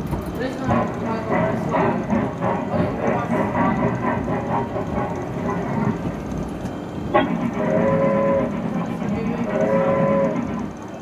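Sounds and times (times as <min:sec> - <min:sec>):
low rumble of ride drive: 0:00.0 - 0:11.0
horn-like toots: 0:07.2 - 0:08.7.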